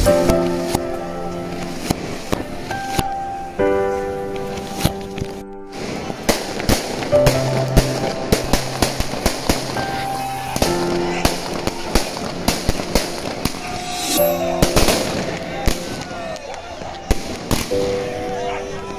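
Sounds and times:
music playing: 0.0s - 18.9s
firecrackers banging: 5.7s - 18.0s.

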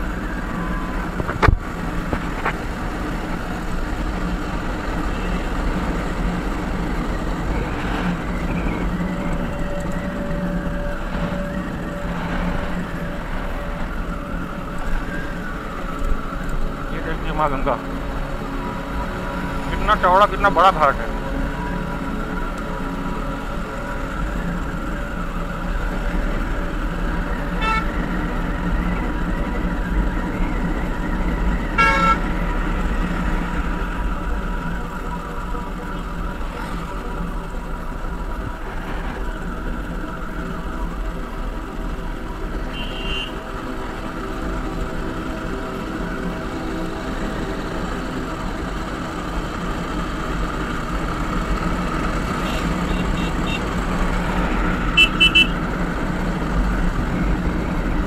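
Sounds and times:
wind noise: 0.0s - 16.3s
motorcycle engine: 0.0s - 58.0s
road noise: 0.0s - 58.0s
vehicle horns tooting: 27.6s - 28.0s, 31.8s - 32.3s, 42.7s - 43.5s, 52.3s - 53.8s, 54.9s - 55.6s.

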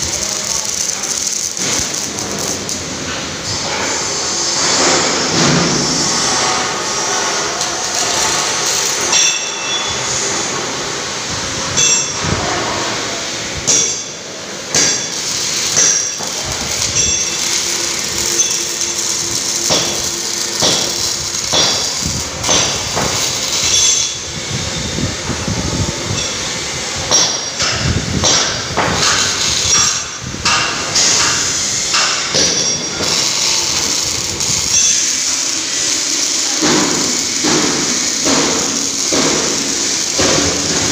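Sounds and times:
workshop background noise: 0.0s - 40.9s
hammer clanging on metal: 7.9s - 10.0s, 13.7s - 24.2s, 27.1s - 35.4s, 36.1s - 40.9s.

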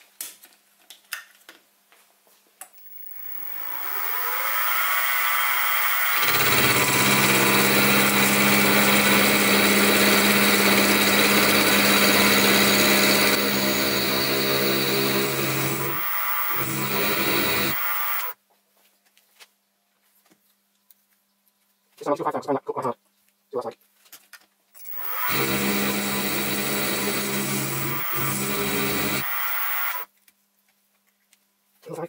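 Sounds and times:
end mill cutting metal: 2.8s - 18.4s, 24.8s - 30.1s
spindle motor whine: 2.8s - 18.4s, 24.8s - 30.1s.

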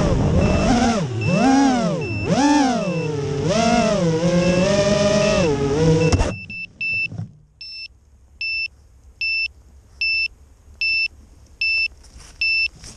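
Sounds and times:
drone motors whining: 0.0s - 7.2s
short high beeps: 0.4s - 3.2s, 4.4s - 12.7s.

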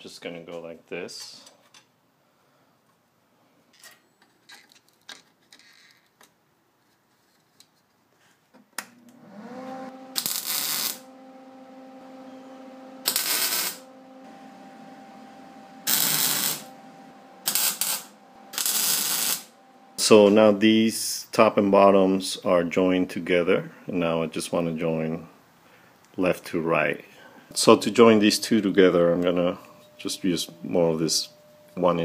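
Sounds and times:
welder humming: 9.0s - 21.1s, 27.4s - 32.0s
welder crackling: 9.1s - 20.7s.

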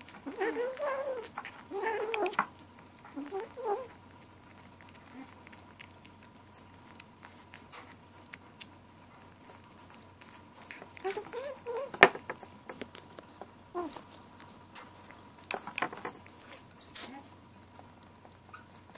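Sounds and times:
faint eating clicks: 0.0s - 18.9s
kitten growly mews: 0.2s - 2.4s.

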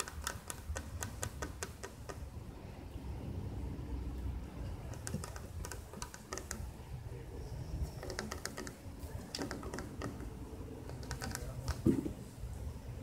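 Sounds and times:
steady low rumble: 2.3s - 4.9s.

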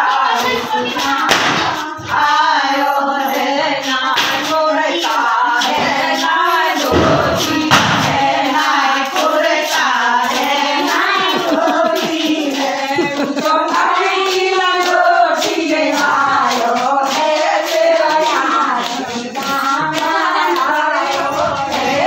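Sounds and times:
rhythmic handclapping: 0.0s - 22.0s
women singing together: 0.0s - 22.0s.

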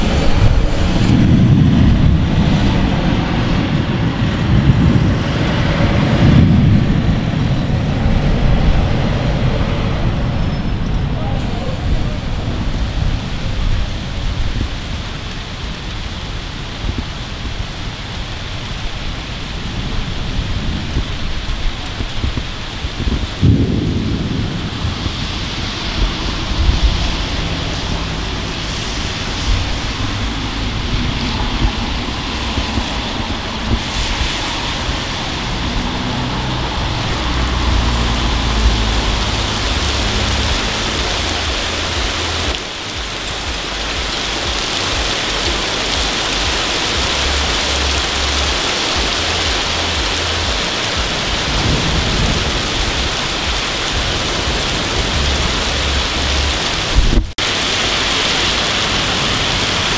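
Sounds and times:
heavy rain: 0.0s - 59.9s
thunder rumbling: 0.0s - 59.9s.

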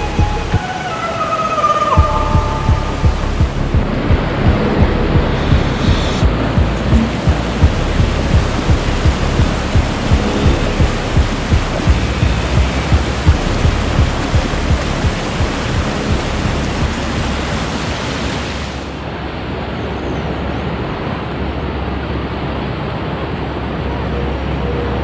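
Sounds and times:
regular low thumps: 0.0s - 0.6s, 2.0s - 18.1s
river rapids rushing over rock: 0.0s - 23.8s.

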